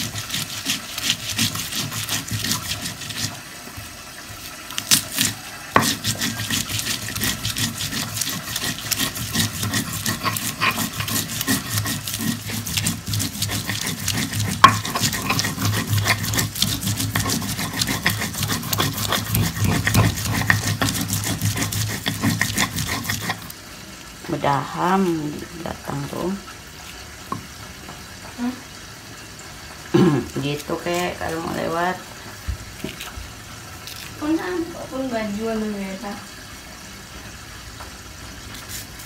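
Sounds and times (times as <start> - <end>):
utensil scraping a bowl: 0.0 - 3.4, 4.7 - 23.6.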